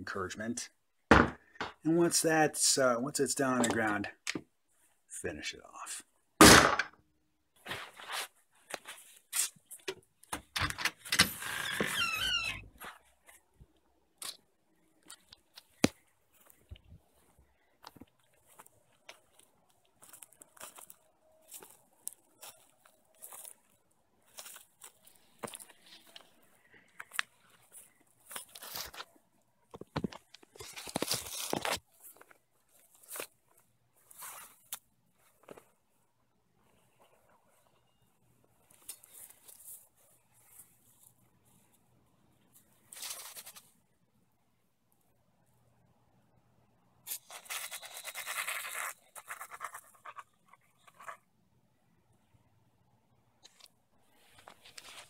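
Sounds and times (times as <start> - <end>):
handling clicks and rustles: 12.7 - 36.0
footsteps: 15.1 - 29.1.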